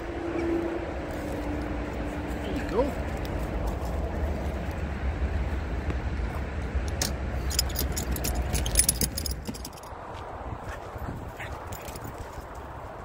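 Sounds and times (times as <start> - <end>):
footsteps crunching on gravel: 1.2 - 4.9
metallic jingling and clicking: 6.9 - 10.0, 11.4 - 12.4.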